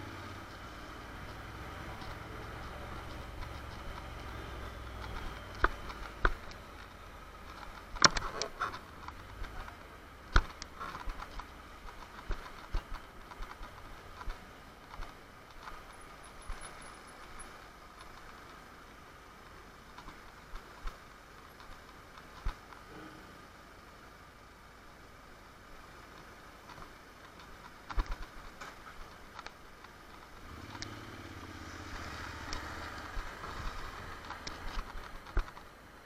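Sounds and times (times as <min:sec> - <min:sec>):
motorcycle engine running: 0:00.0 - 0:07.5, 0:30.4 - 0:35.6
sharp clicks and knocks: 0:01.2 - 0:18.6, 0:26.1 - 0:31.0, 0:31.9 - 0:35.8.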